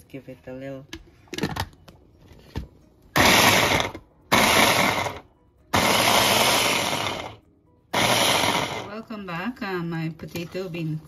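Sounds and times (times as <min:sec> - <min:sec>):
blender motor whirring and chopping: 0:03.2 - 0:08.9.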